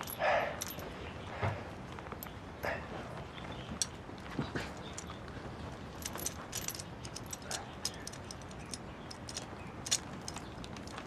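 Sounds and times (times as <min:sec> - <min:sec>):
metal chain clinking: 0:00.0 - 0:01.0, 0:05.9 - 0:11.0.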